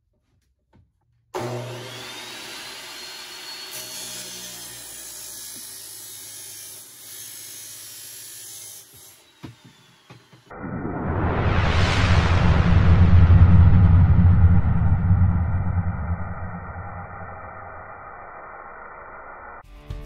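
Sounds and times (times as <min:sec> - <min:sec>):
metal chop saw cutting steel: 0:01.4 - 0:10.4.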